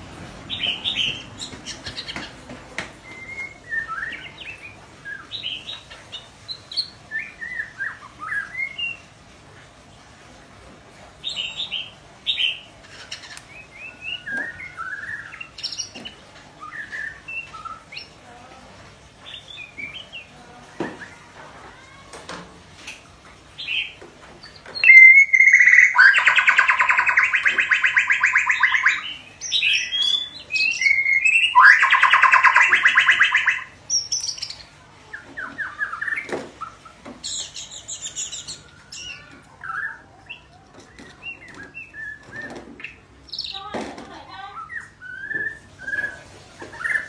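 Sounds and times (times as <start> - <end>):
bird whistling and chirping: 3.0 - 5.7, 6.7 - 9.0, 24.7 - 34.6, 35.4 - 43.5, 44.5 - 47.0
high bird trill: 23.6 - 43.7
bird rapid rattling phrases: 24.8 - 30.0, 30.8 - 33.7.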